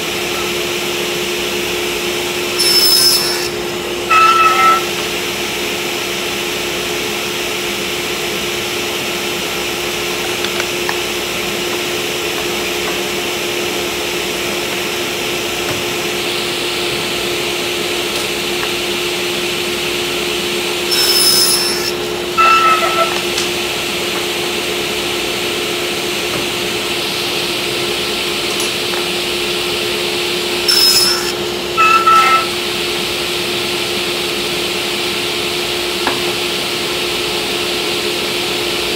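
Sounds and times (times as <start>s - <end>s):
table saw running: 0.0s - 38.9s
saw blade cutting wood: 2.5s - 5.0s, 20.8s - 23.5s, 30.6s - 32.6s.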